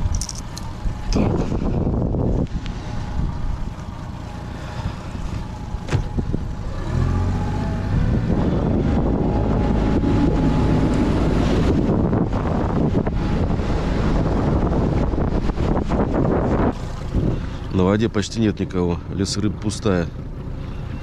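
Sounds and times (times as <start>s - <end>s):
wind on microphone: 0.0s - 3.8s, 4.8s - 17.7s
outboard motor running: 0.0s - 21.0s.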